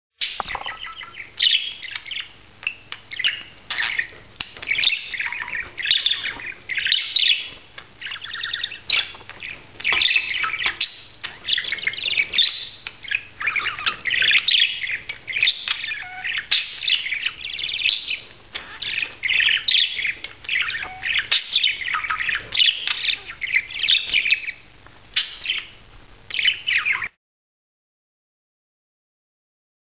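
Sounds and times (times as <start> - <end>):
budgerigar warbling and chattering: 0.2 - 24.6.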